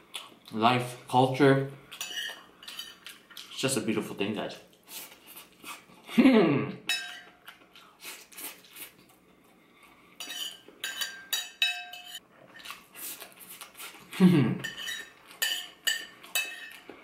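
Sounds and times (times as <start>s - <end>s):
metal spoon scraping ceramic plate: 2.0s - 3.0s, 10.2s - 12.7s, 14.6s - 16.8s
person humming: 6.2s - 6.8s, 14.1s - 14.6s.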